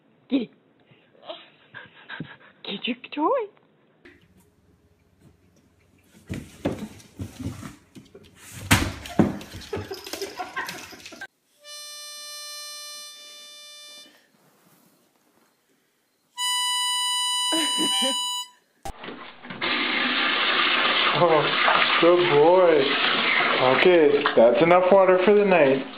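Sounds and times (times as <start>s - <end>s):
reedy harmonica-like notes: 11.6s - 14.2s, 16.4s - 18.6s
rustling: 14.1s - 16.0s.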